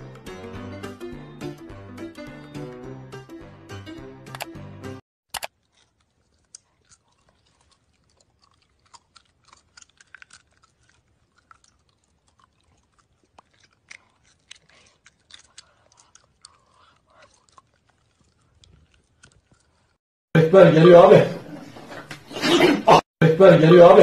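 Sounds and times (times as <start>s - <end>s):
sharp click: 4.3s - 4.5s
chimpanzee chewing with smacks: 5.4s - 20.0s.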